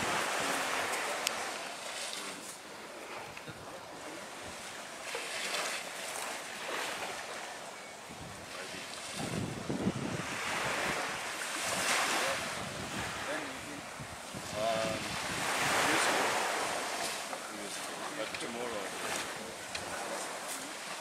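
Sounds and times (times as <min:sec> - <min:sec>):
wind rumbling on microphone: 0:00.0 - 0:01.5, 0:08.0 - 0:17.0
small waves washing onto beach: 0:00.0 - 0:21.0.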